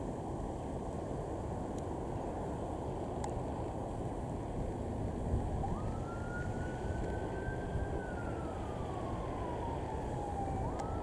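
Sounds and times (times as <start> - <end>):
siren wailing faintly: 5.2 - 11.0.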